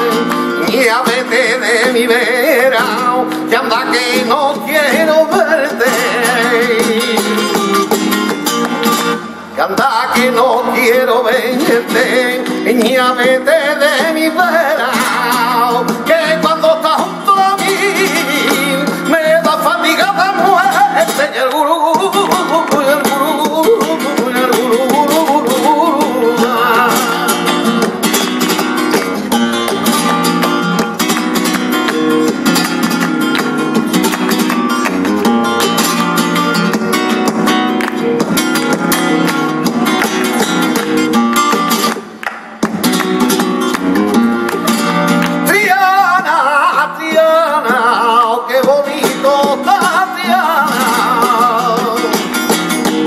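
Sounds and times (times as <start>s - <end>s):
man singing: 0.0s - 8.3s, 9.5s - 29.0s, 44.1s - 52.8s
rhythmic hand-clapping: 0.0s - 9.3s, 10.2s - 53.0s
flamenco guitar: 0.0s - 53.0s.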